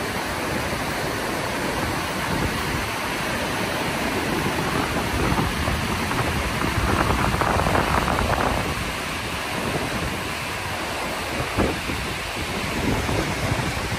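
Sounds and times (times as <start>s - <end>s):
water rushing over rapids: 0.0s - 13.9s.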